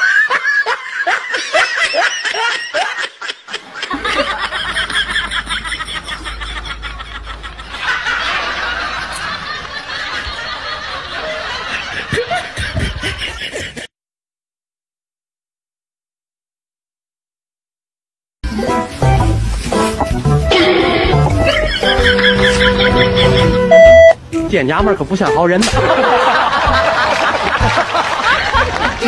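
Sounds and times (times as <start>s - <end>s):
people laughing: 0.0s - 13.9s, 20.5s - 23.8s, 25.6s - 29.0s.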